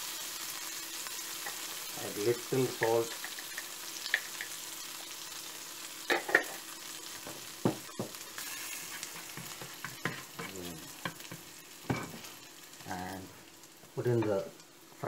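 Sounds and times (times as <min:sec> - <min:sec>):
garlic sizzling in oil: 0:00.0 - 0:15.0
spatula knocking against pan: 0:07.3 - 0:08.2
spatula stirring: 0:08.4 - 0:11.5.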